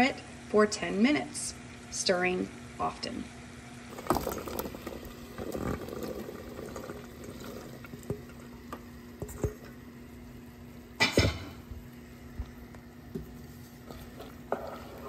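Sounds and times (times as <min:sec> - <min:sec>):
plops and light knocks: 0:04.0 - 0:09.8.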